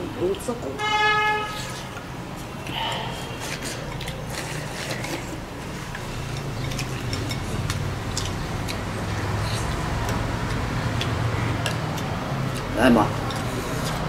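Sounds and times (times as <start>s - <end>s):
utensils clicking against porcelain bowls: 3.4s - 14.0s.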